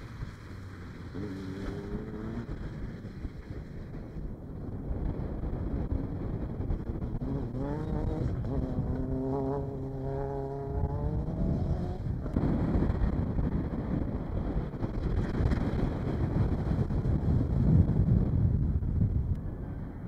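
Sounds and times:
race buggy engine passing: 0:00.0 - 0:04.2, 0:05.2 - 0:13.9
tyres on dirt track: 0:00.0 - 0:20.0
wind rumble: 0:00.0 - 0:20.0.

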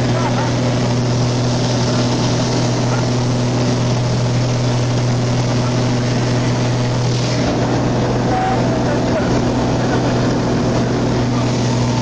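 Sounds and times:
aircraft engine and propeller droning: 0:00.0 - 0:12.0.

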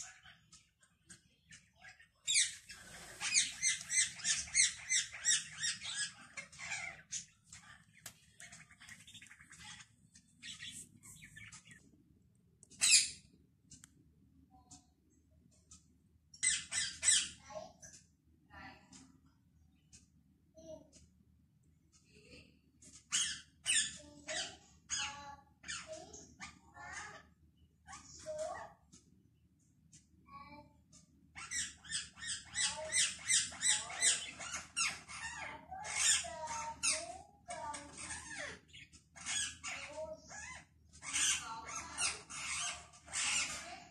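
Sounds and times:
parrot squawking and chirping: 0:00.0 - 0:11.9, 0:12.7 - 0:13.3, 0:16.4 - 0:17.4, 0:23.1 - 0:27.2, 0:31.3 - 0:37.0, 0:37.6 - 0:43.8.

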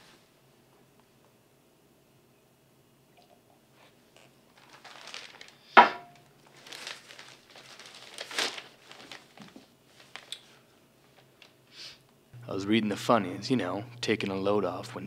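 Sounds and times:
newspaper pages rustling: 0:04.5 - 0:11.6.

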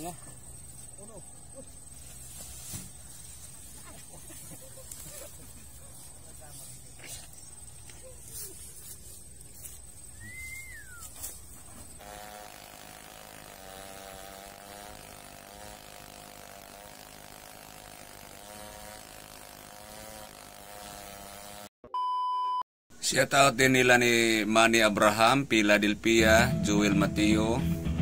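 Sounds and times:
outdoor background noise: 0:00.0 - 0:21.6
chainsaw cutting log: 0:11.8 - 0:21.7.

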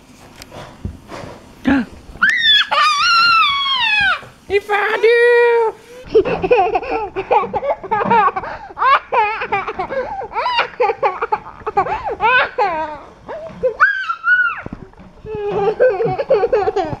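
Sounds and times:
toddler laughing and giggling: 0:06.0 - 0:17.0.

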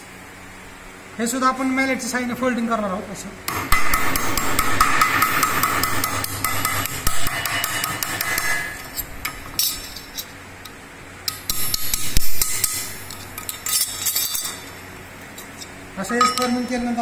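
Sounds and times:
mallet beating sheet metal: 0:03.5 - 0:09.8, 0:11.3 - 0:13.5.

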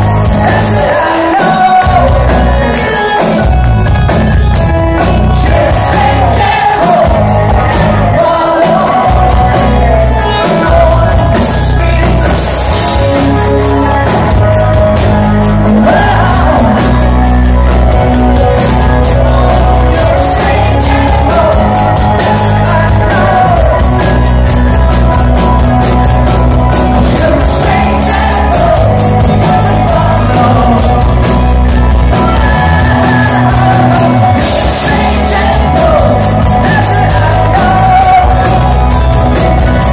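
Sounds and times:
man singing: 0:00.0 - 0:03.9, 0:04.5 - 0:14.8, 0:15.4 - 0:25.4, 0:26.6 - 0:39.9
drums and cymbals: 0:00.0 - 0:39.9
electric guitar: 0:00.0 - 0:39.9
live rock band: 0:00.0 - 0:39.9.

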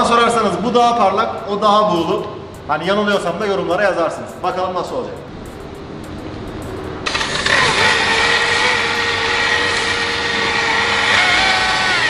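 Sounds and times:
electric polisher whining: 0:07.0 - 0:12.0.

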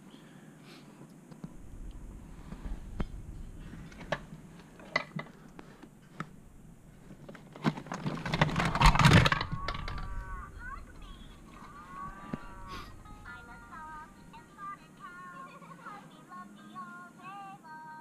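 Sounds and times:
rustling scraping handling noise: 0:01.6 - 0:14.1.

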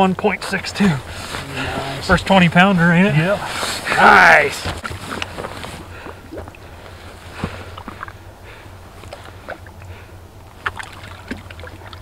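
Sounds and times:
low steady hum: 0:00.0 - 0:12.0
slush and water handled: 0:00.8 - 0:02.4, 0:03.1 - 0:08.2.

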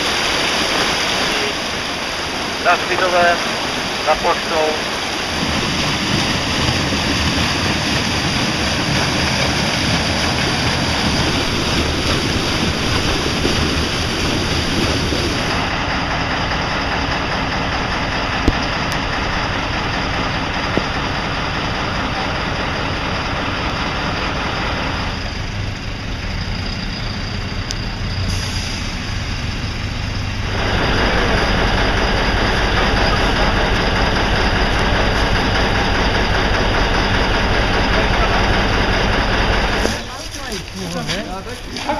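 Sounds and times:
floodwater rushing in ditch: 0:00.0 - 0:41.9
heavy truck engine rumble: 0:00.0 - 0:41.9
truck engines idling: 0:00.0 - 0:41.9.

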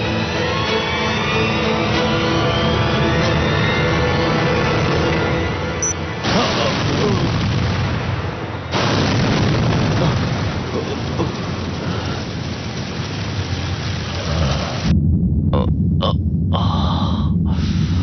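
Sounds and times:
explosion blast: 0:06.2 - 0:18.0
heavy rumbling roar with crackle: 0:06.2 - 0:18.0.

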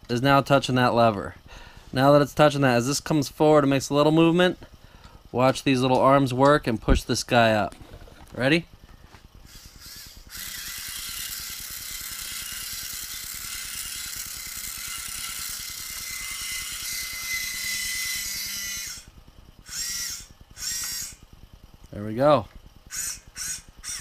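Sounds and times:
small electric motor whine: 0:07.7 - 0:24.0.

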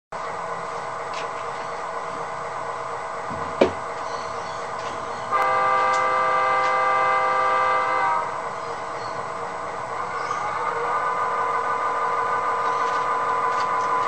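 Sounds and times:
model diesel engine idling: 0:00.2 - 0:14.0
multi-note horn blast: 0:05.3 - 0:08.5.

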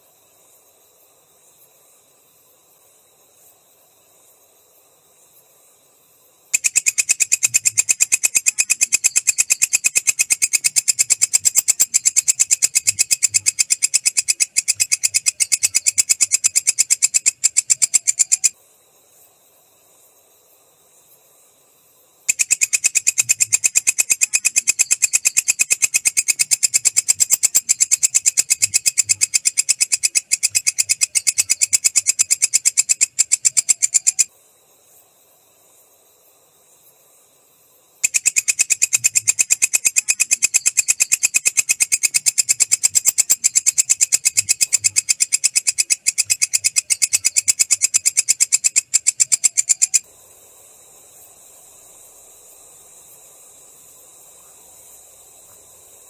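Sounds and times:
katydid trilling clicks: 0:06.6 - 0:18.5, 0:22.3 - 0:34.3, 0:38.0 - 0:50.0.

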